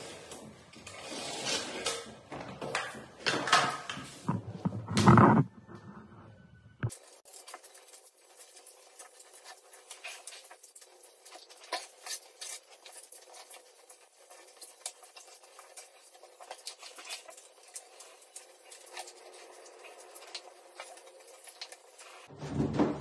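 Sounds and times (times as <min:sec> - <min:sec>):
trowel scraping adhesive on concrete: 0:00.8 - 0:02.0.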